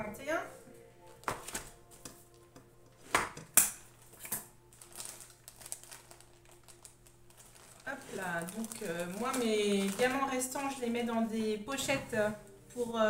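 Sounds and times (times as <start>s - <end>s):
plastic sleeves crinkling: 1.0s - 13.0s
binder pages turning: 1.1s - 2.4s.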